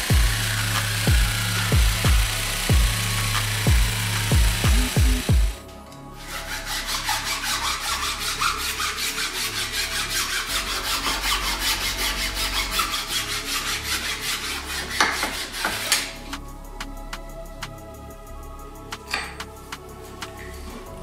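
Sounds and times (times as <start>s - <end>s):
metal file rasping on wood: 6.2s - 16.4s.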